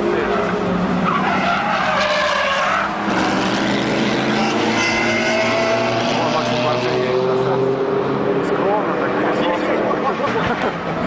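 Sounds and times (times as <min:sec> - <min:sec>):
sports car engine high revs: 0:02.6 - 0:10.1.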